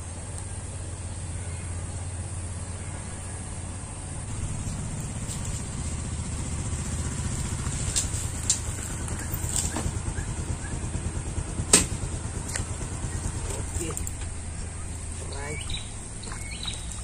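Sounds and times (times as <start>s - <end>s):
engine running rumble: 0.0s - 17.0s.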